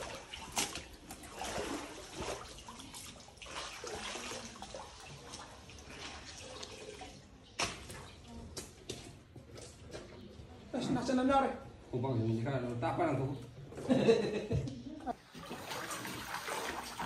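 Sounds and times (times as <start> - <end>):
water sloshing around boat: 0.0 - 10.7, 15.1 - 17.0.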